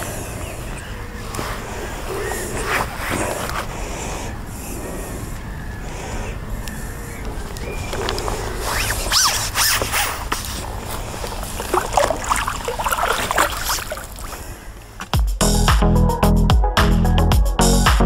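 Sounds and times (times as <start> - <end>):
rustling: 7.5 - 11.6
water splashing: 10.6 - 14.7.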